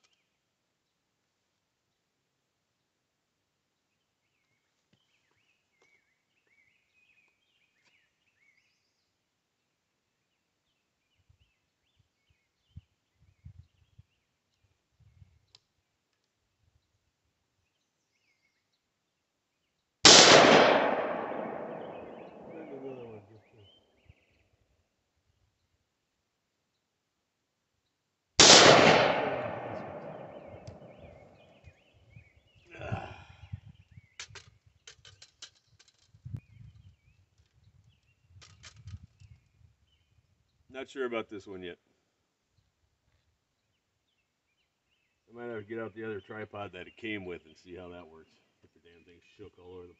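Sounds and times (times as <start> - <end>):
faint bird chirps: 10.1 - 15.8, 21.6 - 24.6, 29.9 - 40.7
faint sharp click: 15.5 - 16.3
light clicks and scrapes: 34.2 - 36.4, 38.4 - 39.4.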